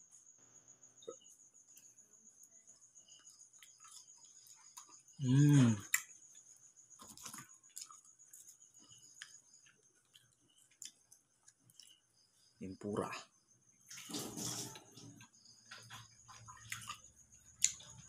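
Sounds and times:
crickets chirping: 0.0s - 18.0s
clicks of eating fries: 15.7s - 18.0s.

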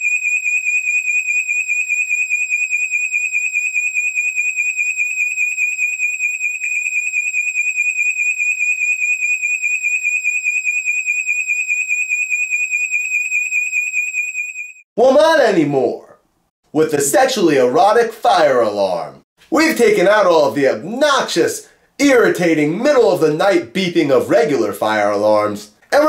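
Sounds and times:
smoke alarm tone: 0.0s - 14.8s.

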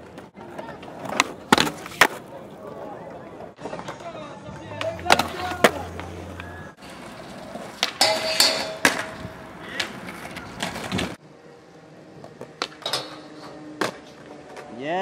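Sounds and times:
skateboard wheels rolling on concrete: 0.0s - 15.0s
skateboard clacks: 3.6s - 11.2s.

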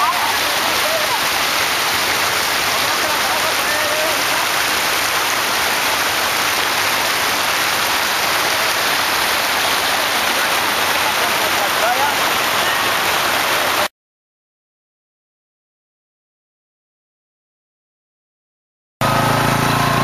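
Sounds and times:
floodwater rushing and splashing: 0.0s - 13.9s, 19.0s - 20.0s.

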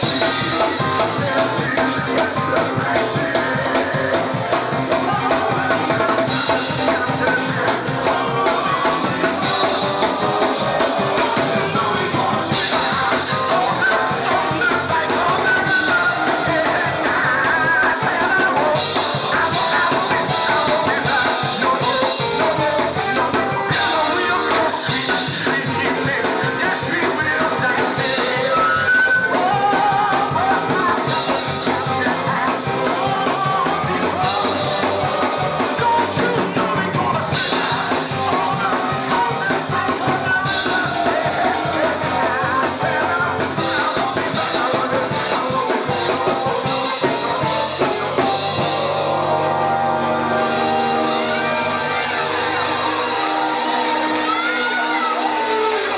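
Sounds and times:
amplified band with drums: 0.0s - 55.9s
man singing into microphone: 0.0s - 55.9s.

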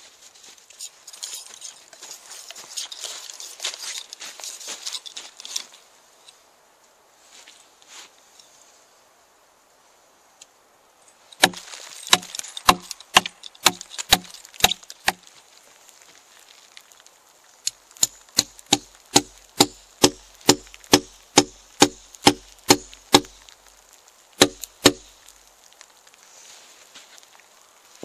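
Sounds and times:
hammer striking nails into log: 11.4s - 15.2s, 18.0s - 23.4s, 24.4s - 25.1s.

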